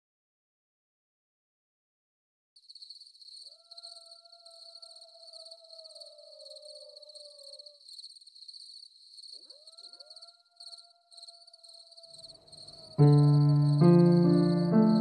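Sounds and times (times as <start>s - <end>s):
crickets chirping: 2.6s - 15.0s
faint long howls: 3.5s - 7.8s, 9.5s - 15.0s.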